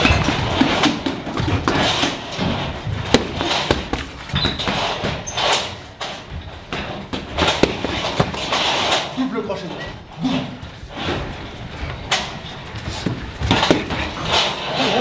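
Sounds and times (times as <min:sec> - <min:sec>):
boxing gloves hitting mitts: 0:00.0 - 0:05.8, 0:06.6 - 0:09.0, 0:12.8 - 0:14.5.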